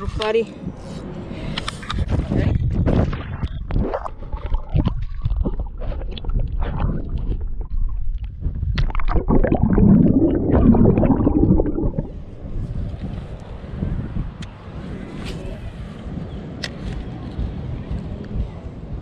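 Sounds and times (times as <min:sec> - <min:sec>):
underwater gurgling and sloshing: 0:02.9 - 0:12.9.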